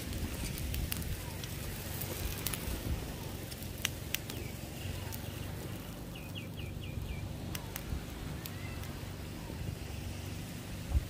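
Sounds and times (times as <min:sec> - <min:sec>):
fire burning with crackles: 0:00.0 - 0:11.0
bird chirping: 0:04.2 - 0:07.8.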